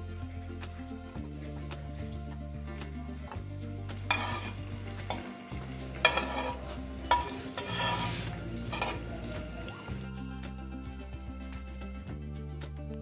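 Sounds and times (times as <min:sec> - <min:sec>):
buns sizzling on hot pan: 0:00.6 - 0:10.2
metal spatula scraping: 0:03.9 - 0:10.0.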